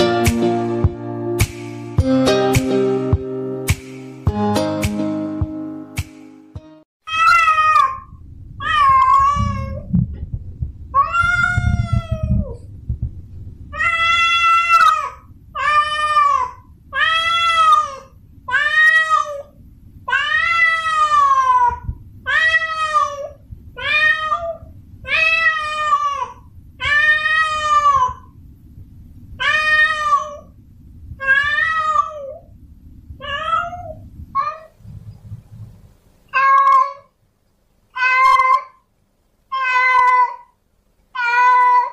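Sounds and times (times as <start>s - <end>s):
cat yowling: 7.1s - 9.9s, 11.0s - 12.6s, 13.7s - 28.3s, 29.4s - 30.6s, 31.2s - 32.5s, 33.2s - 34.8s, 36.3s - 37.1s, 37.9s - 38.8s, 39.5s - 41.9s.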